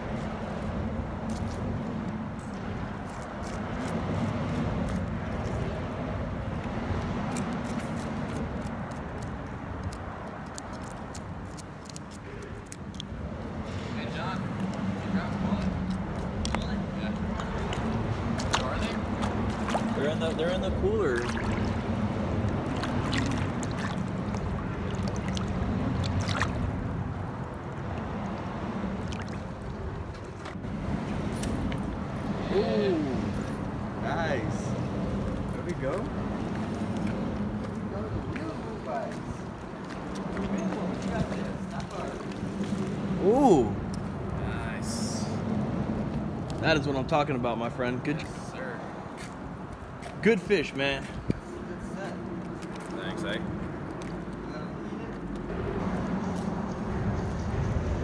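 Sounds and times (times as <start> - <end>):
water sloshing and lapping: 6.5 - 32.4, 34.8 - 44.2, 52.3 - 55.4.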